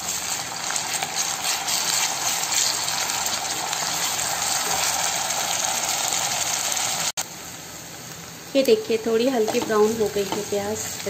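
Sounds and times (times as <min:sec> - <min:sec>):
wooden spatula stirring: 0:00.0 - 0:04.9
onions sizzling in hot oil: 0:00.0 - 0:11.0.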